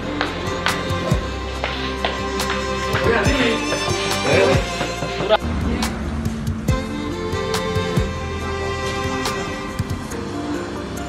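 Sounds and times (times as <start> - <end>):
background music with held notes: 0.0 - 11.0
light percussive strokes: 0.2 - 6.9.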